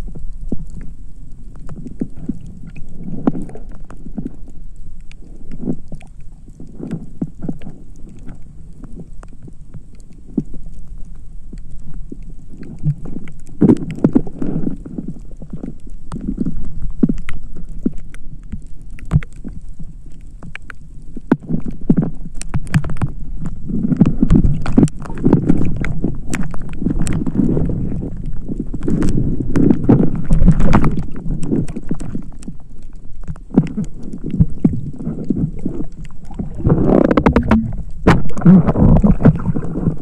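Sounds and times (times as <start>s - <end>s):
water sloshing against camera: 0.0s - 40.0s
muffled low thuds: 36.3s - 40.0s.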